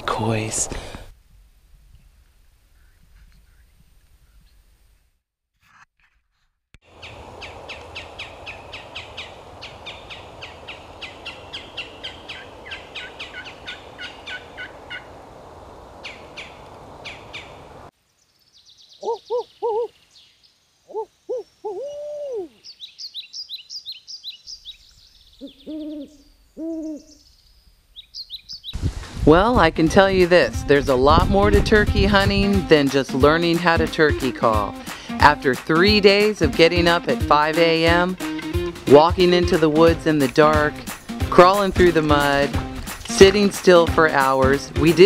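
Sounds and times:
fast high bird chirps: 0:06.9 - 0:15.2, 0:22.6 - 0:28.8
quick high bird calls: 0:06.9 - 0:15.2, 0:16.0 - 0:17.7
owl hooting: 0:06.9 - 0:17.9, 0:18.9 - 0:20.0, 0:20.8 - 0:27.3
steady hiss: 0:06.9 - 0:18.2.

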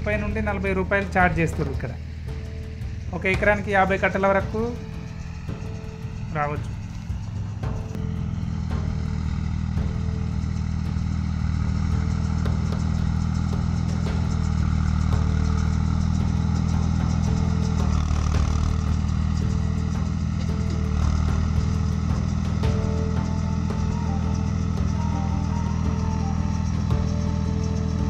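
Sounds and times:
tractor diesel engine under load: 0:00.0 - 0:28.0.

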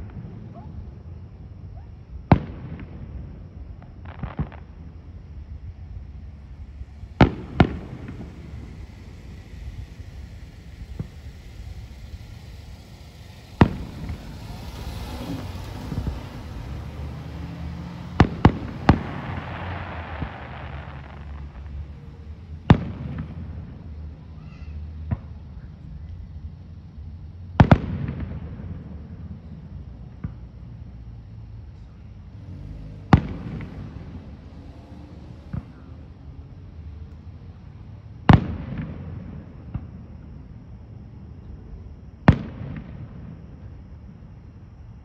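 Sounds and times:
fireworks bursting with bangs: 0:00.0 - 0:26.1, 0:27.6 - 0:31.0, 0:33.0 - 0:36.3, 0:37.5 - 0:40.6, 0:41.4 - 0:44.4
low background rumble: 0:00.0 - 0:45.0.

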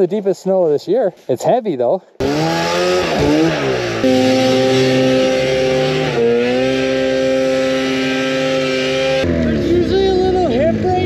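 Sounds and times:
snowmobile engine under throttle: 0:02.2 - 0:11.0.

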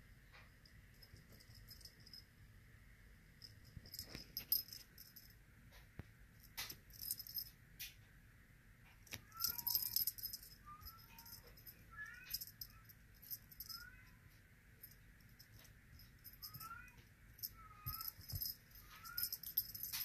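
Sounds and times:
jingling rattle shaken: 0:03.4 - 0:05.3, 0:06.6 - 0:07.5, 0:09.1 - 0:13.9, 0:14.8 - 0:20.0.

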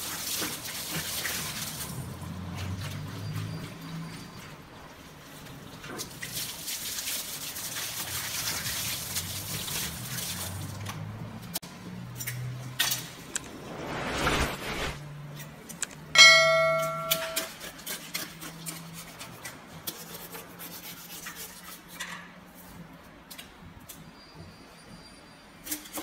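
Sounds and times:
loud ringing metallic clang: 0:16.2 - 0:17.5
knife scraping and slicing fish: 0:17.4 - 0:22.2.

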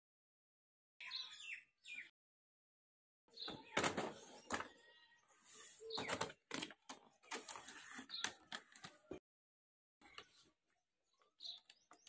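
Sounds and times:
cardboard and plastic handling: 0:05.6 - 0:09.2.

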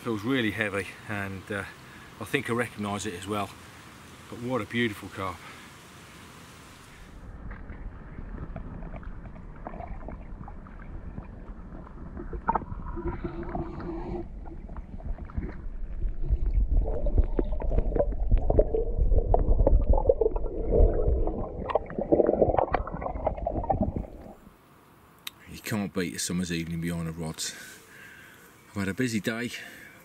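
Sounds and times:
muffled underwater rumbling: 0:07.2 - 0:24.5
small knocks underwater: 0:07.4 - 0:24.5
water bubbling: 0:07.8 - 0:24.5.

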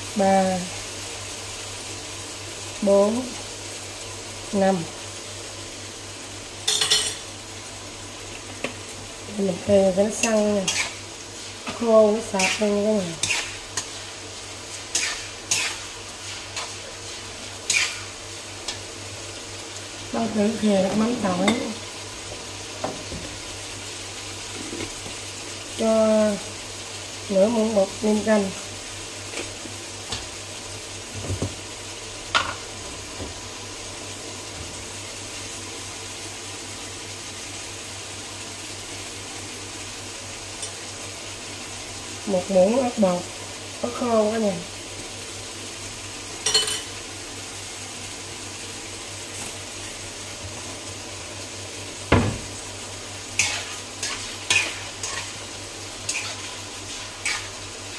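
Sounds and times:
food sizzling in a pan: 0:00.0 - 0:57.9
spatula scraping a pan: 0:10.1 - 0:18.8, 0:53.3 - 0:55.4, 0:56.0 - 0:57.9.

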